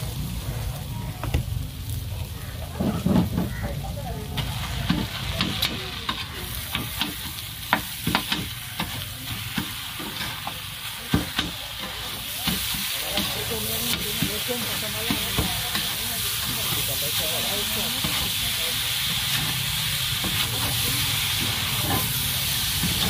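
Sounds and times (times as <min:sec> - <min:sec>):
steady sizzling: 0:00.0 - 0:23.0.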